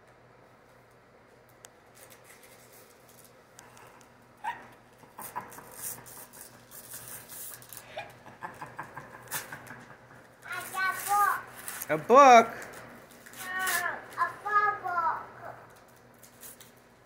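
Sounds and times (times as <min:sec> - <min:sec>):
wrapping paper tearing and rustling: 0:01.8 - 0:03.8, 0:05.0 - 0:09.6, 0:10.5 - 0:14.8, 0:15.7 - 0:17.0.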